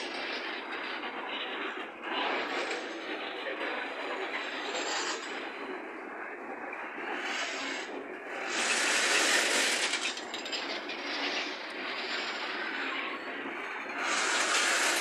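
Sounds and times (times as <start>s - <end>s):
freight train wheels rattling on rails: 0.0s - 15.0s.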